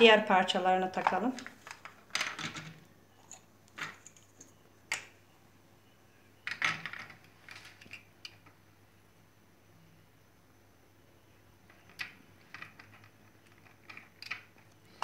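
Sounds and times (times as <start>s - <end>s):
plastic parts clicking and knocking: 1.0s - 5.1s, 6.4s - 8.6s, 11.6s - 15.0s.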